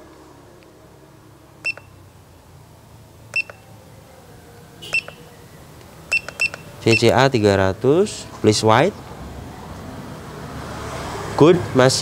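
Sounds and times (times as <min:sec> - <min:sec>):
high beeps: 0:01.6 - 0:02.0, 0:03.3 - 0:03.6, 0:04.8 - 0:05.2, 0:06.1 - 0:07.1
button clicks: 0:03.3 - 0:03.6, 0:04.9 - 0:05.2, 0:06.1 - 0:07.2.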